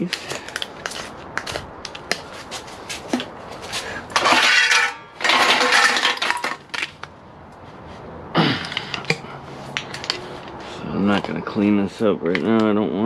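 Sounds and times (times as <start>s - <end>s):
metal scraping and rattling: 2.8s - 7.1s
aluminum lengths clinking: 4.0s - 7.1s.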